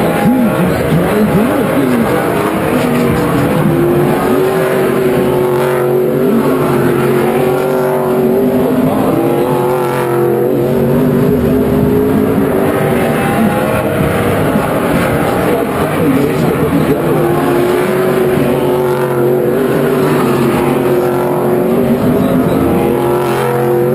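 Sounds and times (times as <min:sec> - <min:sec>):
race car engines passing: 0:00.0 - 0:23.9.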